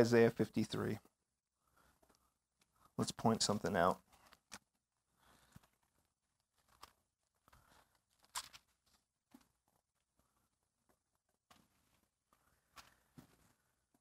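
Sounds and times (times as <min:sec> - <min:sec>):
pages being turned: 0:05.4 - 0:09.5.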